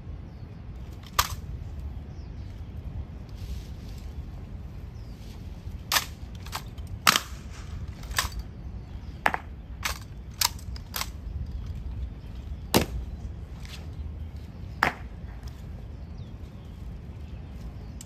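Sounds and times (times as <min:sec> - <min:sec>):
rifle slaps and knocks: 0:09.2 - 0:11.2.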